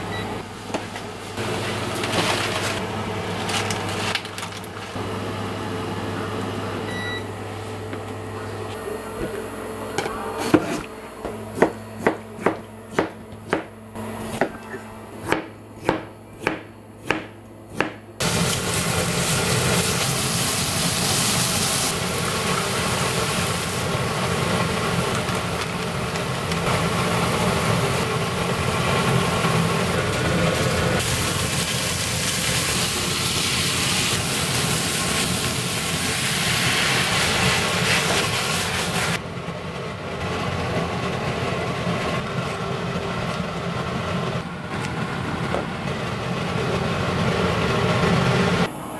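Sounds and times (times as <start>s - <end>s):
frying pan sizzling: 18.2s - 48.7s.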